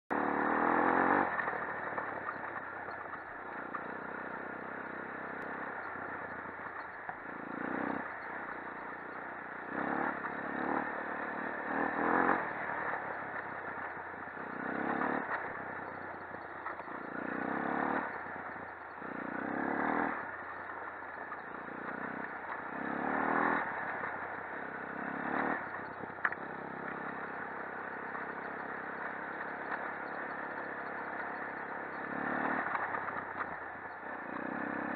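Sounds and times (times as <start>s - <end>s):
quad engine revving: 0.1s - 2.4s, 3.5s - 34.9s.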